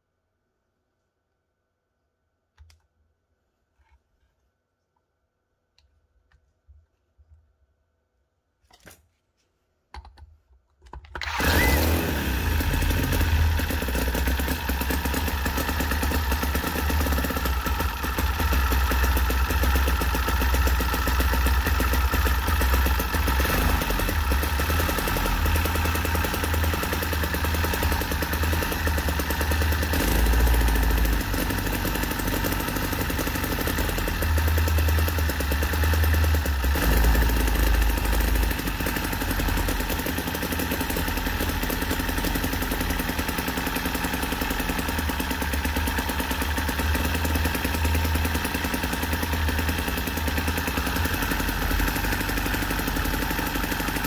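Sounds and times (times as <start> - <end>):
model engine running fast: 11.2 - 54.0.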